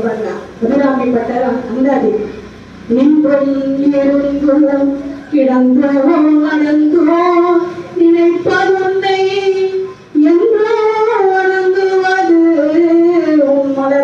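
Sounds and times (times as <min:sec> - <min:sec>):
high voice singing devotional song: 0:00.0 - 0:14.0.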